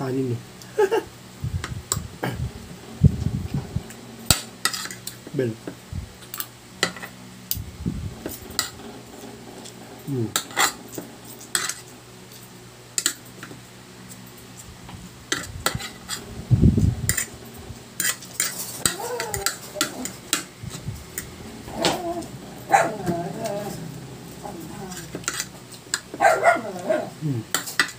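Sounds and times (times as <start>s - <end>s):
cutlery scraping a ceramic plate: 4.3s - 5.2s, 9.6s - 11.9s, 15.3s - 16.2s, 18.0s - 20.5s, 23.0s - 26.2s.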